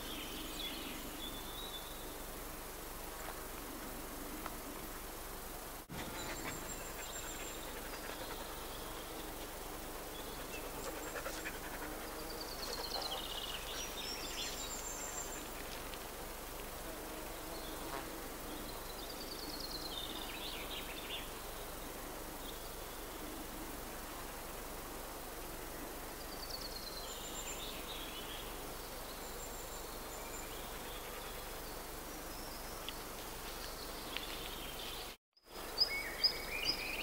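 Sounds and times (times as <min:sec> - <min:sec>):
songbird singing: 0:00.0 - 0:02.4, 0:05.9 - 0:15.9, 0:17.2 - 0:23.5, 0:26.1 - 0:37.0
background hiss: 0:00.0 - 0:37.0.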